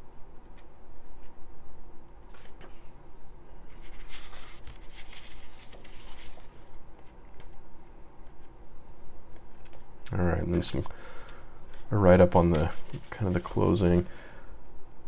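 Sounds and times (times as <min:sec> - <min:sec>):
book pages rustling: 0:02.3 - 0:02.8, 0:03.6 - 0:07.6, 0:12.4 - 0:14.0.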